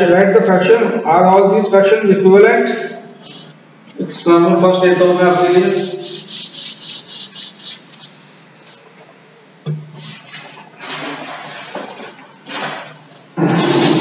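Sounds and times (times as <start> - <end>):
chalk scraping on a blackboard: 4.3 - 8.9.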